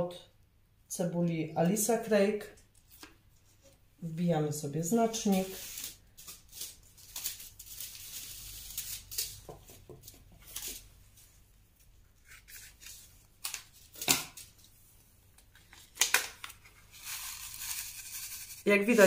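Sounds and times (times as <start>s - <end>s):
paper packets rustling: 5.1s - 10.9s, 15.4s - 19.0s.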